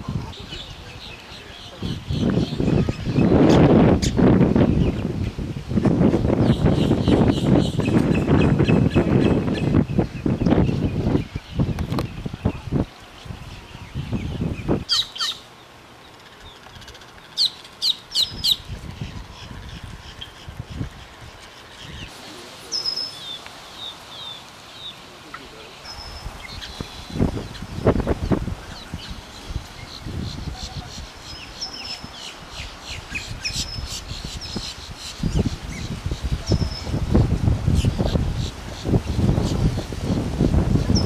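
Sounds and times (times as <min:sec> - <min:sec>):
wind rumble on microphone: 0:00.0 - 0:01.1, 0:01.7 - 0:15.0, 0:18.2 - 0:22.1, 0:25.9 - 0:41.0
bird calling: 0:06.4 - 0:37.0
high thin bird chirps: 0:16.1 - 0:22.1.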